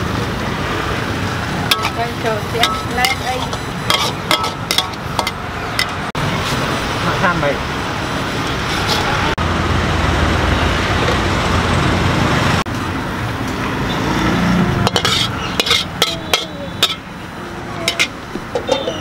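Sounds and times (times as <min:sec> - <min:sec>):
metal spatula clanking against wok: 0:01.7 - 0:06.0, 0:14.8 - 0:17.1, 0:17.8 - 0:19.0.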